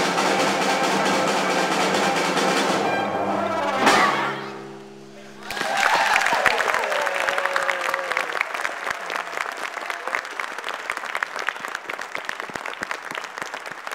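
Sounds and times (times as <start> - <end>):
person cheering: 5.2 - 10.4
audience applause: 5.2 - 13.9.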